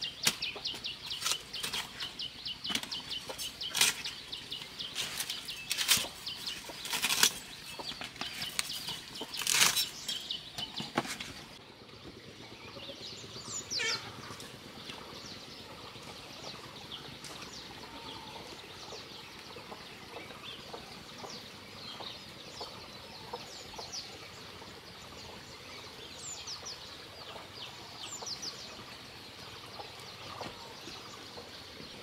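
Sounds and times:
blade chopping plant stalks: 0:00.0 - 0:11.6
leaves rustling: 0:00.0 - 0:11.6.

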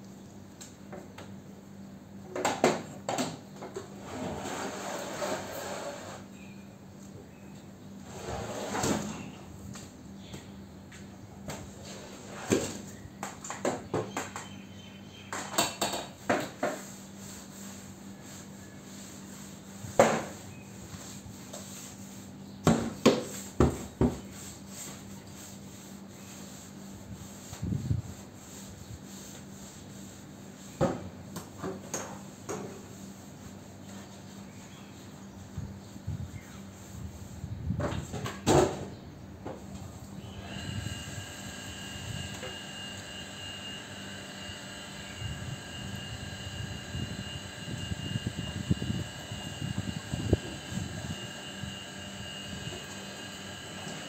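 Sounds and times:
broom scrubbing wet tiled floor: 0:03.9 - 0:06.3, 0:11.5 - 0:13.0, 0:16.2 - 0:37.6, 0:40.4 - 0:54.0.

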